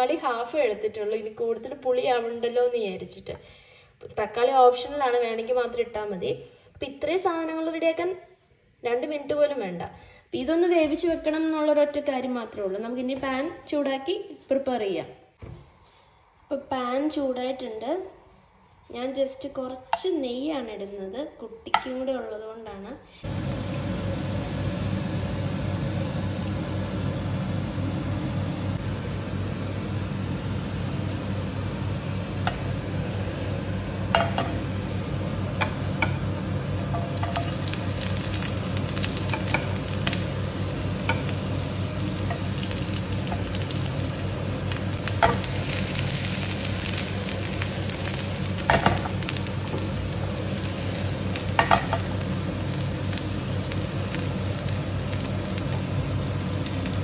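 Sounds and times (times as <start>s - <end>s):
low hum: 23.3s - 57.0s
shallots sizzling in a pan: 30.0s - 34.9s, 35.5s - 57.0s.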